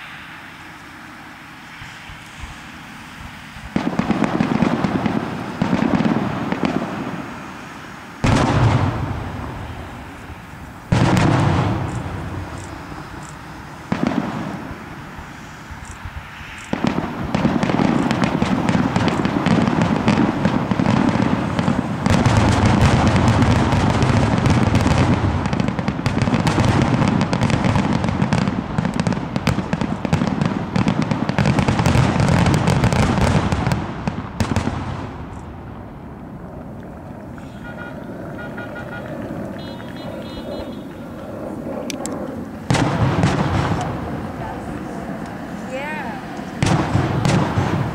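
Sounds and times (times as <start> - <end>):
fireworks shell bursts and crackling: 3.5 - 15.0, 15.8 - 35.6
fireworks bang: 3.6 - 7.6, 8.2 - 14.9, 16.5 - 35.9, 42.6 - 44.9, 46.6 - 47.9.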